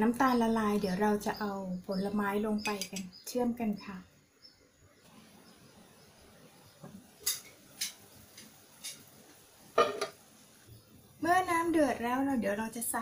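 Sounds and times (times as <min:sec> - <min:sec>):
water boiling in pot: 0:05.0 - 0:12.8
glass lid clinking: 0:09.8 - 0:10.2.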